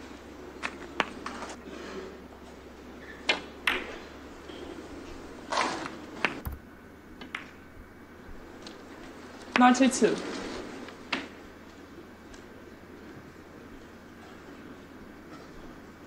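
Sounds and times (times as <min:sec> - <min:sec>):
quiet arena hush: 0:00.0 - 0:16.0
snooker balls clicking: 0:00.6 - 0:01.6, 0:03.0 - 0:04.8, 0:05.6 - 0:09.7.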